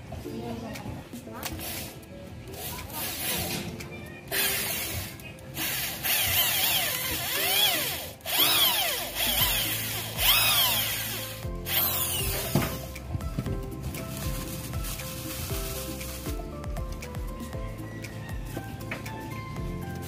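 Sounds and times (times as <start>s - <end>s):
electric drill boring into wood: 4.3s - 12.8s.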